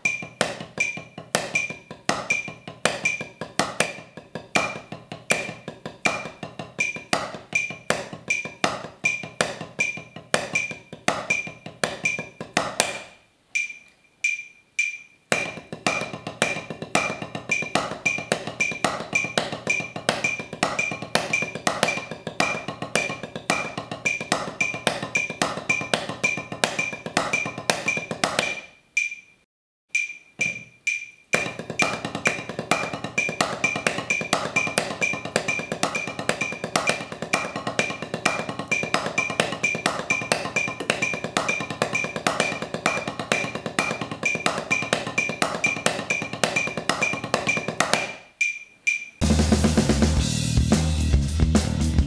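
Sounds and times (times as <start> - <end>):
metronome click: 0.0 - 4.0, 4.6 - 16.0, 17.5 - 32.4, 43.3 - 49.2
drumsticks on practice pad: 0.0 - 49.3.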